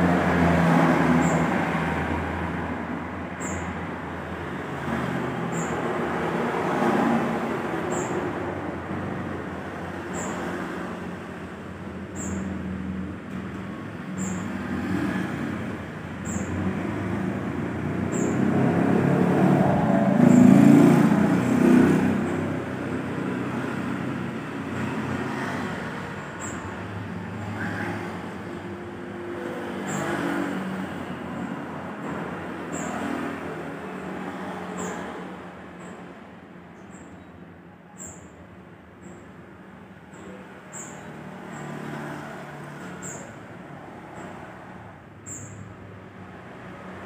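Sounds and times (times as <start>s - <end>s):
road traffic rumble: 0.0s - 47.0s.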